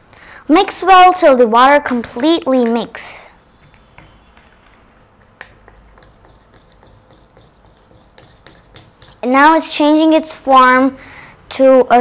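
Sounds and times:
plastic spatula stirring in a cup: 0:03.6 - 0:09.8.

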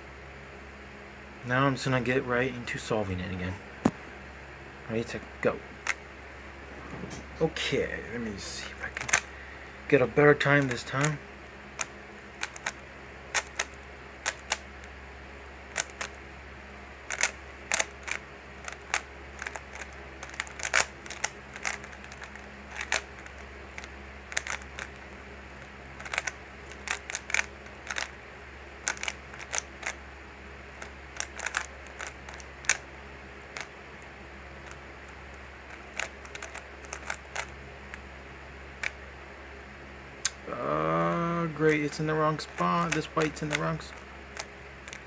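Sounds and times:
puzzle cube plastic clicks: 0:08.9 - 0:09.3, 0:10.4 - 0:11.2, 0:11.8 - 0:14.7, 0:15.7 - 0:16.2, 0:17.1 - 0:25.0, 0:26.0 - 0:28.2, 0:28.8 - 0:30.0, 0:30.8 - 0:32.8, 0:33.5 - 0:33.7, 0:34.6 - 0:38.0, 0:41.7 - 0:45.0.

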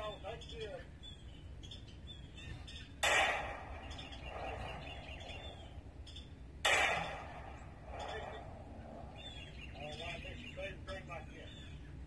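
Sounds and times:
pistol shots: 0:03.0 - 0:05.6, 0:06.6 - 0:08.6.

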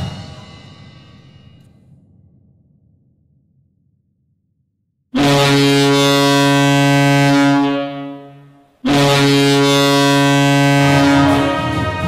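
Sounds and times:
low goal horn blasts: 0:05.2 - 0:12.0.

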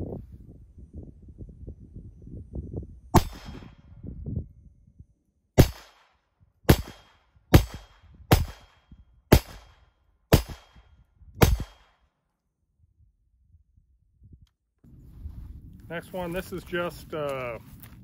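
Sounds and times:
pistol shots: 0:03.2 - 0:03.8, 0:05.6 - 0:12.1.

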